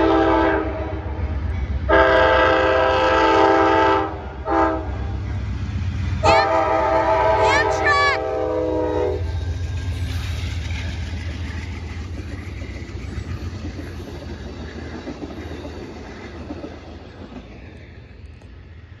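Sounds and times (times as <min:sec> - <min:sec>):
diesel locomotive rumble: 0:00.0 - 0:19.0
train wheels clattering on rails: 0:08.5 - 0:19.0.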